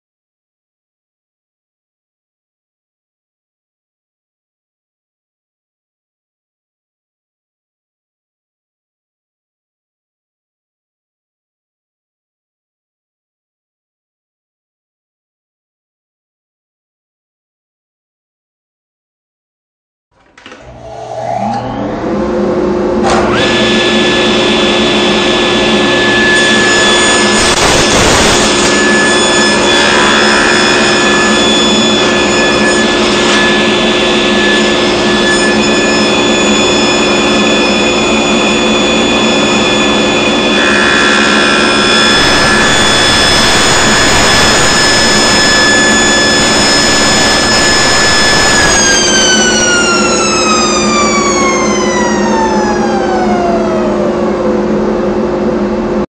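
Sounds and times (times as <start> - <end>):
table saw running with whine: 20.4 - 56.0
saw blade cutting wood: 25.6 - 52.5.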